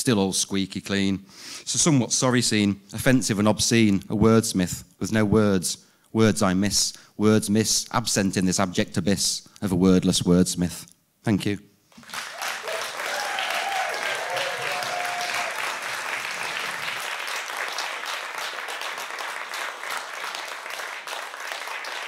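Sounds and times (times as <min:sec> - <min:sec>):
audience applauding: 0:12.0 - 0:22.0.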